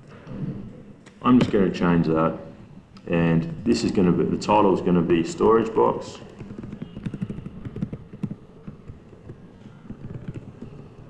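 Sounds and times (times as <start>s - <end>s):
keyboard typing clicks: 6.3s - 10.8s.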